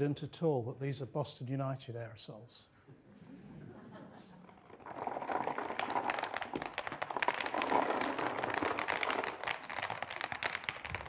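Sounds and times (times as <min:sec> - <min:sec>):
plastic balls clattering on a net: 0:04.4 - 0:11.0.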